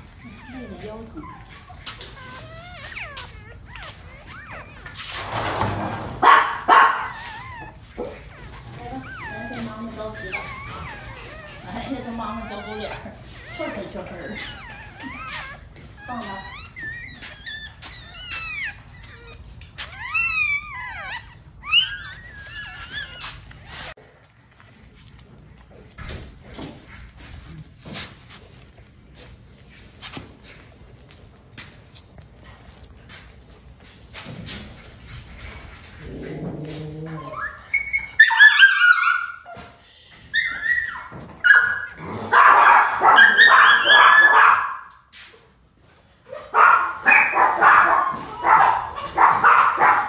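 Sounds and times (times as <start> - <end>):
puppies squealing and whining: 0.0 - 50.0.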